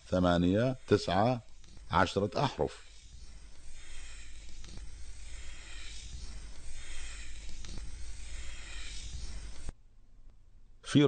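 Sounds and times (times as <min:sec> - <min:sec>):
chalk scratching on blackboard: 0:00.0 - 0:09.7.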